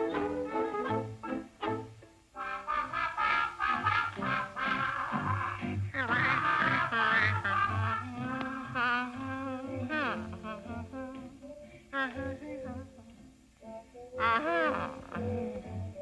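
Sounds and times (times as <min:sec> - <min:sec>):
orchestral cartoon music: 0:00.0 - 0:10.9
woman humming: 0:05.6 - 0:13.1, 0:14.0 - 0:16.0
woman singing: 0:06.0 - 0:16.0.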